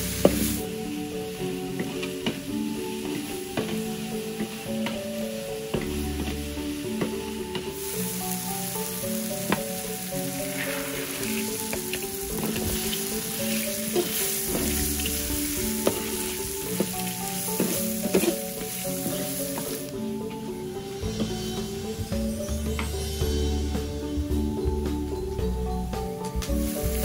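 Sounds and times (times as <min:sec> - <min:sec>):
spice paste sizzling in a wok: 0:00.0 - 0:25.6, 0:26.4 - 0:27.0
soft background music: 0:00.0 - 0:27.0
metal spatula scraping a pan: 0:10.3 - 0:19.9.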